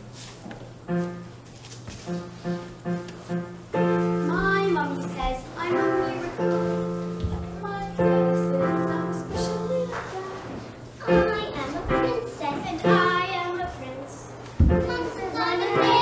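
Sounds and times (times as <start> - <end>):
chords: 2.0 - 10.4
young voice singing: 14.7 - 16.0.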